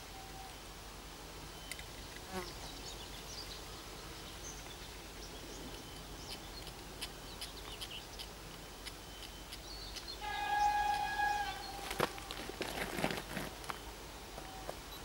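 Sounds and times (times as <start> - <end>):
bird chirps and calls: 8.9 - 12.3.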